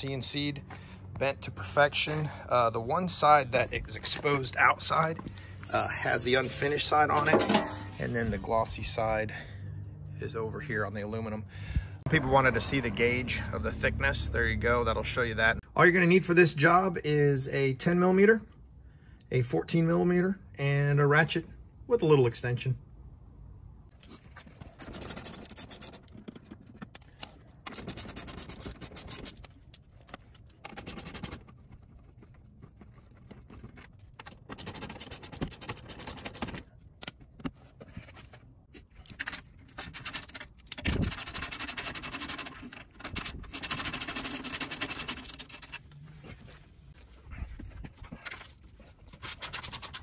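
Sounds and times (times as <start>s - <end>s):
scraping and handling noise: 3.2s - 8.6s, 23.9s - 50.0s.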